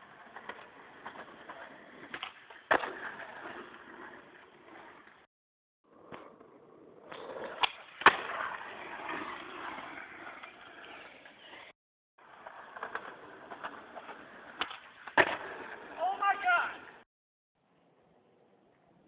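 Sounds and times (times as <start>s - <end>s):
skateboard wheels rolling on asphalt: 0.0s - 17.1s
skateboard clacks: 6.0s - 11.4s, 12.4s - 16.8s.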